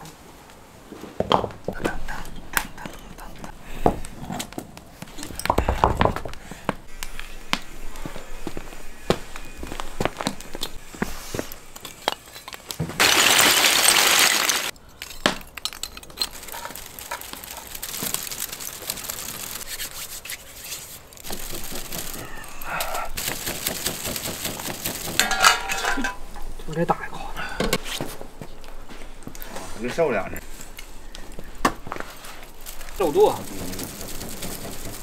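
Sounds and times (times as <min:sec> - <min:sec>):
charcoal fire crackling and popping: 0:01.3 - 0:28.0, 0:28.6 - 0:35.0.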